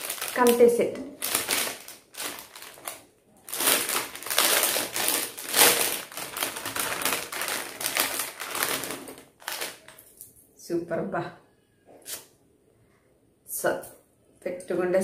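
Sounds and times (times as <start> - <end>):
jewellery crackling rustle: 0.0 - 10.3.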